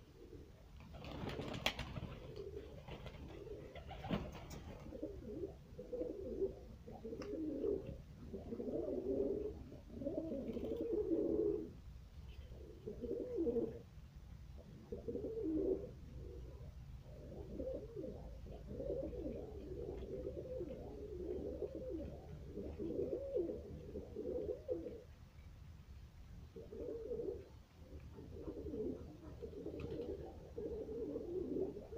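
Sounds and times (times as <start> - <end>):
pigeons cooing: 0.0 - 13.9, 14.5 - 25.2, 26.5 - 31.9.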